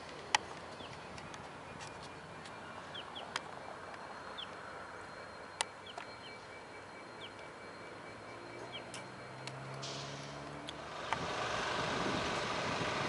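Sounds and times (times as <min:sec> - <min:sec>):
high bird chirps: 0:05.7 - 0:09.3.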